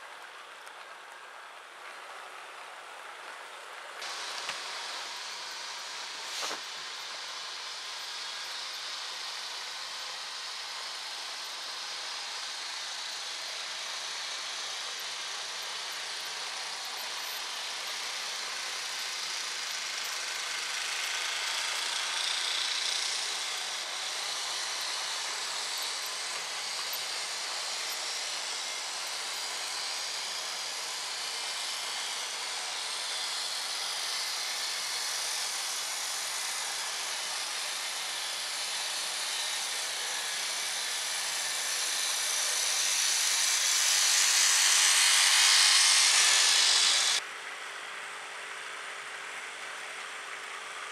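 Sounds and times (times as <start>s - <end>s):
model train wheels rolling on rails: 0.0s - 50.9s
small electric motor whirring: 4.0s - 47.2s.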